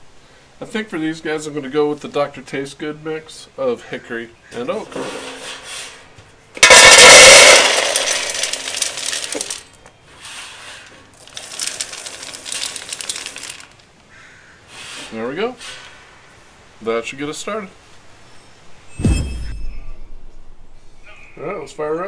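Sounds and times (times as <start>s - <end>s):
pellets rattling into metal pail: 6.6s - 9.7s, 11.1s - 13.8s.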